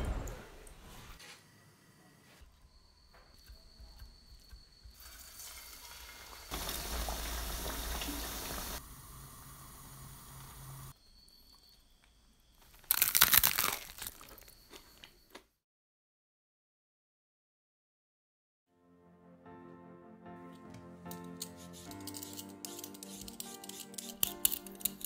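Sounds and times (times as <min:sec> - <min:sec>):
sizzling hiss: 0:04.9 - 0:10.9
loud crisp crunching: 0:12.6 - 0:15.5, 0:21.5 - 0:25.0.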